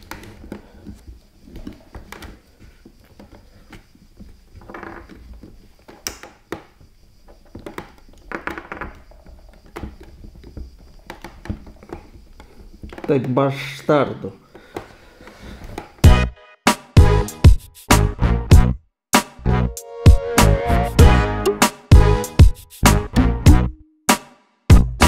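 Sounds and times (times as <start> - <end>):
metal and plastic knocking: 3.2 - 13.4.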